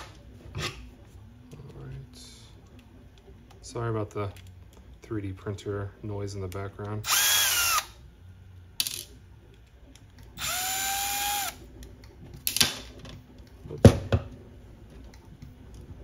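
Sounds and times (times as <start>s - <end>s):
drill driver running: 7.0s - 7.9s, 10.4s - 11.6s.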